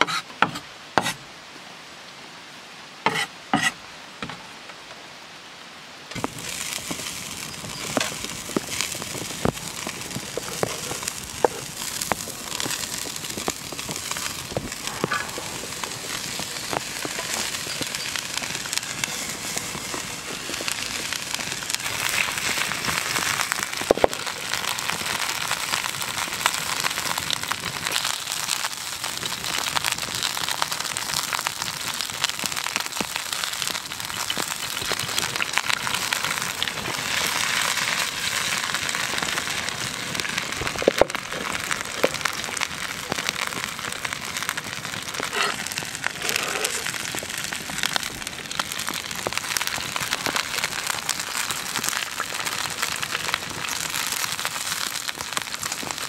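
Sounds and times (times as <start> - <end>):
knife chopping on wooden board: 0.0 - 1.2
bacon sizzling and popping in pan: 6.1 - 56.0.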